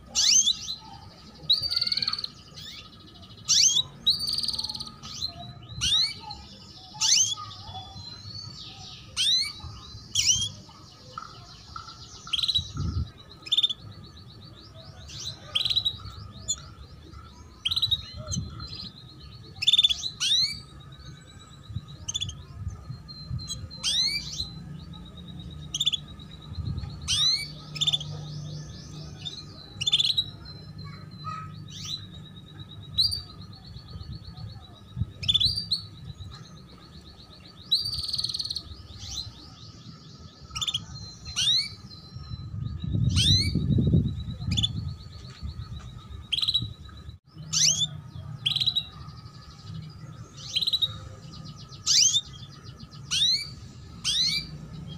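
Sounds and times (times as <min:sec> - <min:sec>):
buzzy bird trills: 0:00.0 - 0:14.1, 0:50.3 - 0:54.9
canaries chirping: 0:00.0 - 0:54.9.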